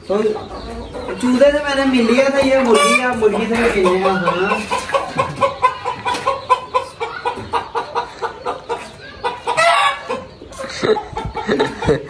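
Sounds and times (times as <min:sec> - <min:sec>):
chicken clucking: 0:00.0 - 0:12.0.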